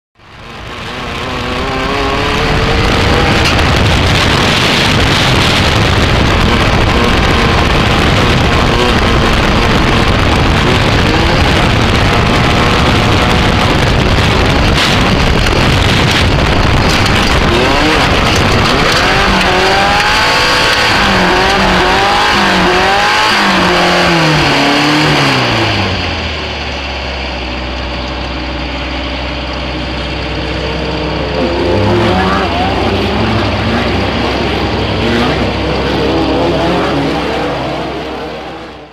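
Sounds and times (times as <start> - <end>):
buggy engine revving: 0.2 - 38.9
wind and dirt noise: 0.2 - 38.9.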